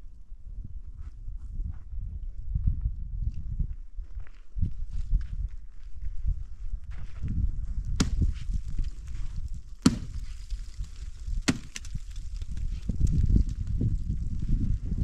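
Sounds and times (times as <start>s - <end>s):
axe chopping into wood: 8.0s - 8.9s, 9.8s - 12.6s.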